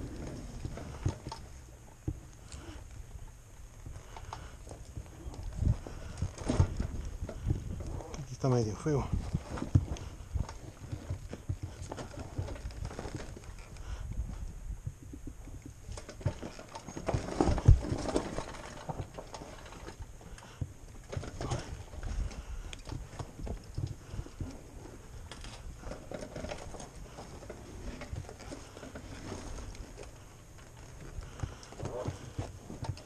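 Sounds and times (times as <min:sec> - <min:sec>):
footsteps on rocky trail: 0:00.0 - 0:33.0
tyres knocking over rocks: 0:15.9 - 0:20.0.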